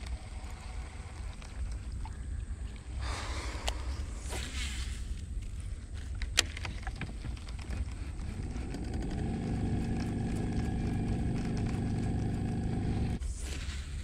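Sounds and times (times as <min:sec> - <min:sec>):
electric trolling motor humming: 0:07.5 - 0:13.2.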